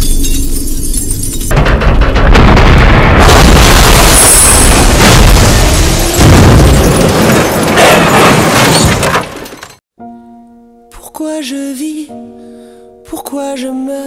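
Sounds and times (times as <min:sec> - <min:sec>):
car crash with shattering glass: 0:00.0 - 0:09.8
soft music of held chords: 0:10.0 - 0:14.0.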